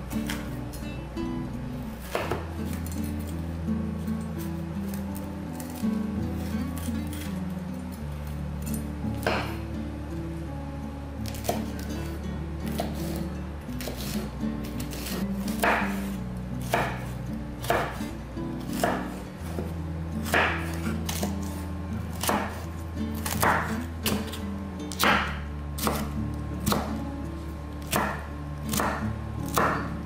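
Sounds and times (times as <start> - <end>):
soft background music: 0.0 - 30.0
knife chopping on wooden board: 2.0 - 3.0, 9.1 - 9.6, 11.2 - 12.1, 12.7 - 13.2, 13.8 - 18.1, 18.7 - 27.0, 27.8 - 29.9.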